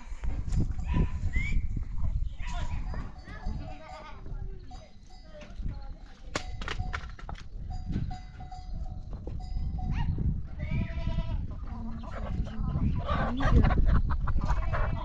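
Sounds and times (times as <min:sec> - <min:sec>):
livestock bleating: 0:10.6 - 0:11.5.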